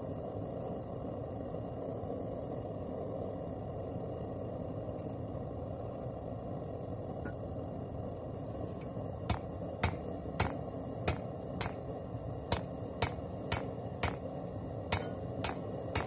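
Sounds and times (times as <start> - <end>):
hammer striking metal on anvil: 9.3 - 11.8, 12.5 - 14.2, 14.9 - 16.0.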